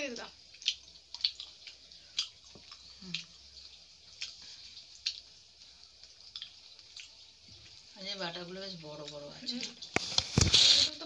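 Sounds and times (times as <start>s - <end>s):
wet mouth smacks while chewing: 0.5s - 3.4s, 4.1s - 5.2s.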